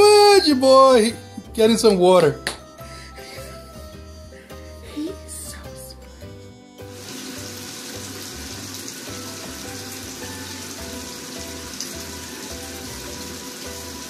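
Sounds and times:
running water hiss: 0:06.9 - 0:14.0.

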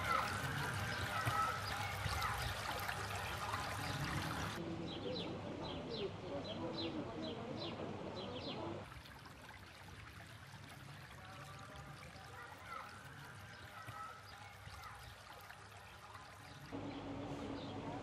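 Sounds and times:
stream running over stones: 0:00.0 - 0:04.6, 0:08.8 - 0:16.8
birds chirping: 0:00.0 - 0:08.8, 0:11.4 - 0:18.0.

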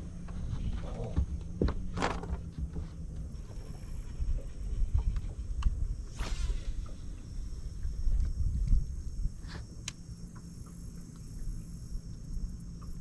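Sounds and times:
wind rumble on microphone: 0:00.0 - 0:10.2
low steady hum: 0:00.0 - 0:13.0
short hiss: 0:06.1 - 0:07.1.

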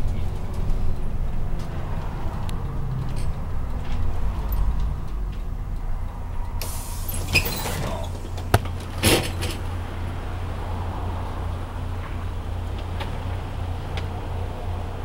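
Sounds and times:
bus diesel engine running: 0:00.0 - 0:15.0
compressed air hiss: 0:06.6 - 0:08.0.

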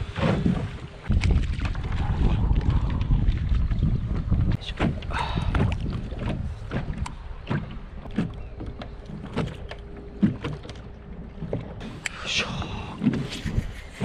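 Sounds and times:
wind rumble on microphone: 0:00.0 - 0:08.5, 0:11.7 - 0:14.0
waves lapping against kayak hull: 0:00.0 - 0:14.0.

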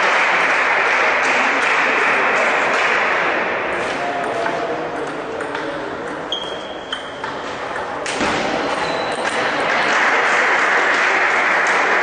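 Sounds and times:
spectators applauding: 0:00.0 - 0:02.3, 0:09.6 - 0:12.0.

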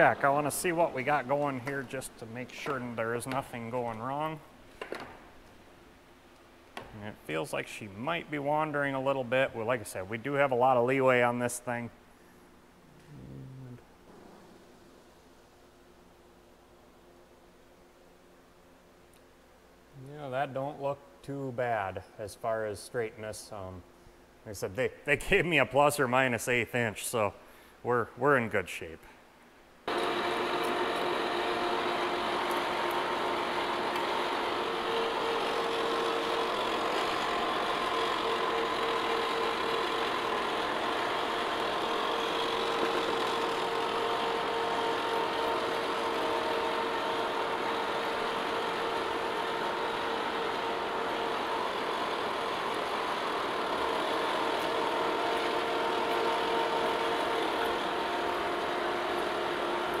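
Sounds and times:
drill cutting through steel: 0:29.9 - 1:00.0.

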